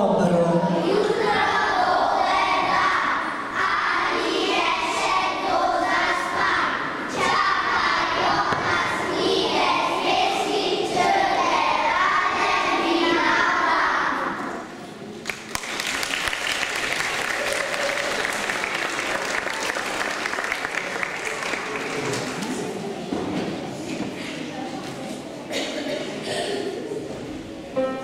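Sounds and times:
children singing in chorus: 0.7s - 14.7s.

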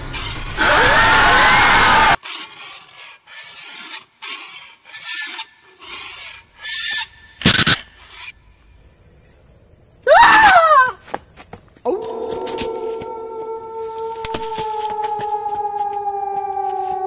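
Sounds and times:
short rasping scrapes: 2.2s - 8.4s.

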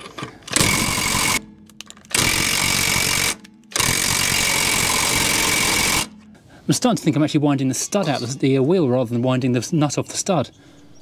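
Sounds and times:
impact wrench hammering: 0.6s - 1.4s, 2.1s - 6.3s.

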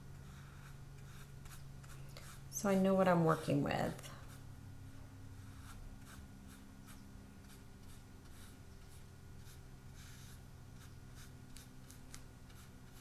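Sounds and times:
paintbrush stroking on paper: 5.3s - 13.0s.

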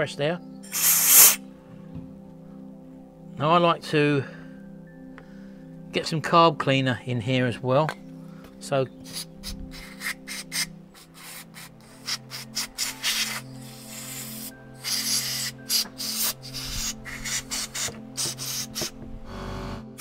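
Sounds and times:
background music: 0.0s - 20.0s
aerosol spray spurts: 0.7s - 1.4s, 9.1s - 19.0s.

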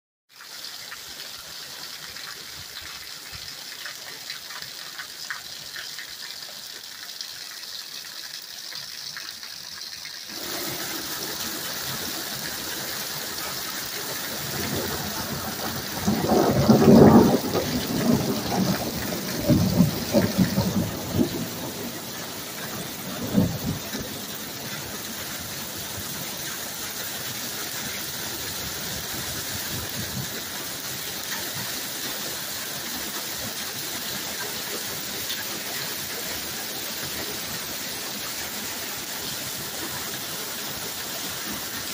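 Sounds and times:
rain hissing: 9.4s - 41.9s.

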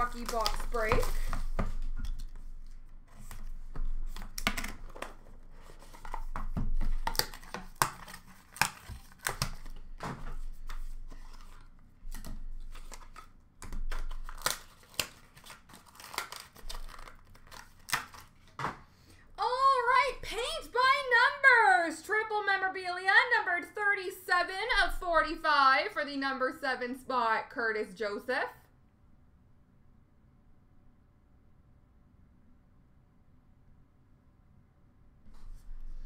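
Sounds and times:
packaging tearing and crinkling: 0.0s - 18.6s.

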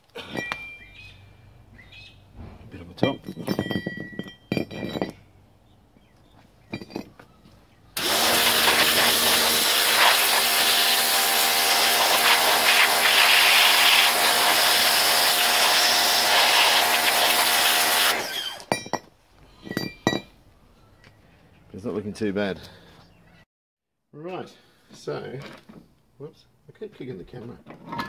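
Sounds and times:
pressure washer spray hiss: 8.0s - 18.1s
pump hum: 8.0s - 18.6s.

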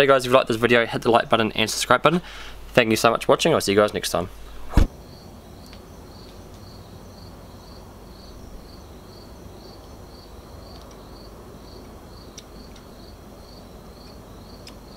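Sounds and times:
faint background hiss: 0.0s - 14.9s
cricket chirping: 5.0s - 14.9s.

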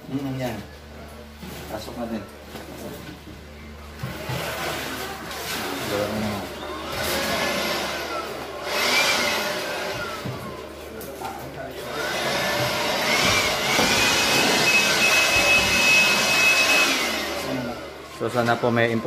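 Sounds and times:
power tool motor whirring: 6.6s - 10.6s, 11.9s - 19.0s.

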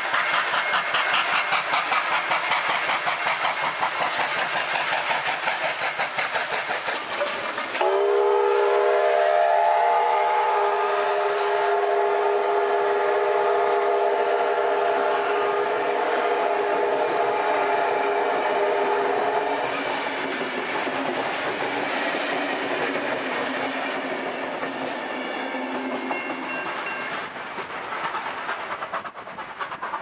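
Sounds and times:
steam locomotive chuffing: 0.0s - 30.0s
steam locomotive whistle: 7.8s - 20.0s.

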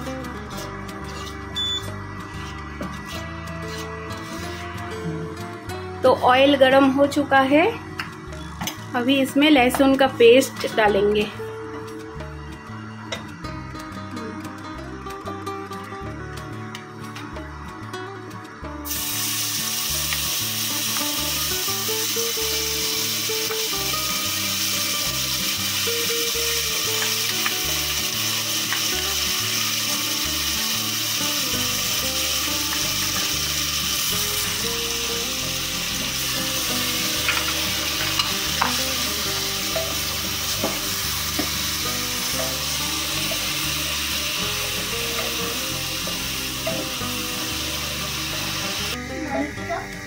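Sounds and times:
garlic sizzling in oil: 0.0s - 4.9s, 18.4s - 50.0s.

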